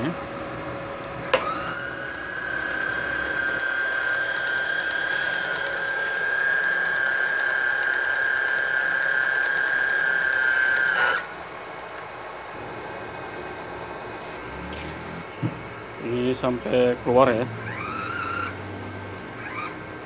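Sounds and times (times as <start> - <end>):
welder wire feed motor whining: 0.5 - 11.5, 16.2 - 20.0.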